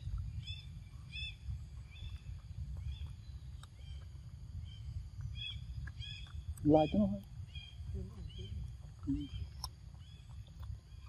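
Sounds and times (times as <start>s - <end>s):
bird chirping: 0.0s - 11.0s
steady low rumble: 0.0s - 11.0s.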